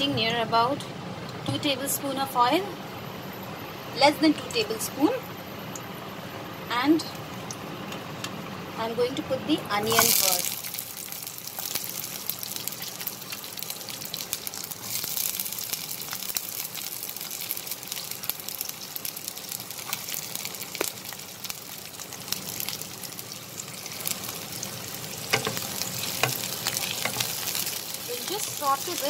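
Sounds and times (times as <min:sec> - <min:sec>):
onion sizzling in hot oil: 0:09.7 - 0:29.0
wooden spatula stirring and knocking: 0:25.3 - 0:27.3.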